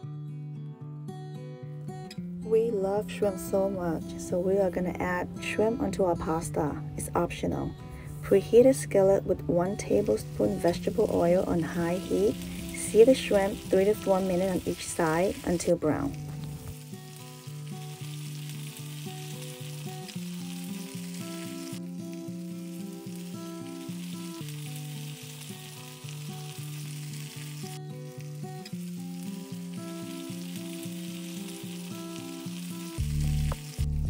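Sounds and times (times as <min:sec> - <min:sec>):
shrimp sizzling in oil: 0:09.8 - 0:34.0
background music with beat: 0:33.0 - 0:34.0.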